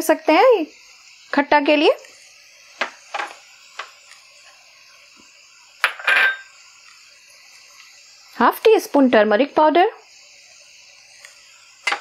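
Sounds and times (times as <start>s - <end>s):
faint steady hiss: 0.0s - 12.0s
glass bowls clinking: 5.8s - 6.6s.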